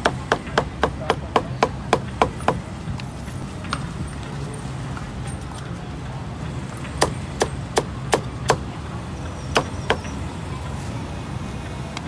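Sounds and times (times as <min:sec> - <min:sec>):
cleaver chopping on wooden block: 0:00.0 - 0:02.6, 0:07.0 - 0:08.7, 0:09.6 - 0:10.1.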